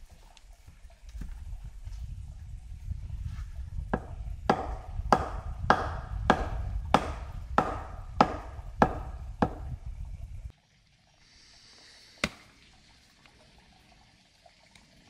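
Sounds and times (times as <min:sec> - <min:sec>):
low rumble: 0:01.2 - 0:10.5
chopping wood: 0:04.0 - 0:09.7, 0:12.2 - 0:12.4.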